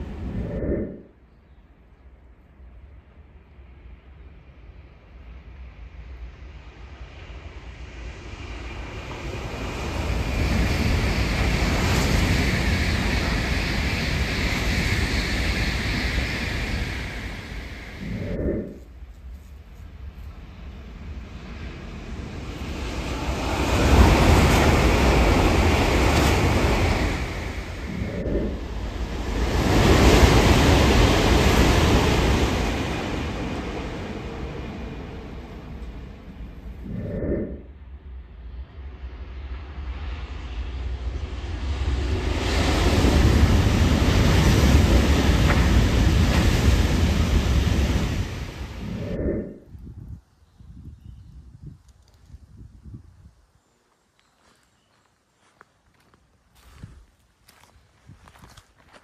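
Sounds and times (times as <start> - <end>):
high-speed train passing: 0.0 - 1.2, 2.9 - 49.7.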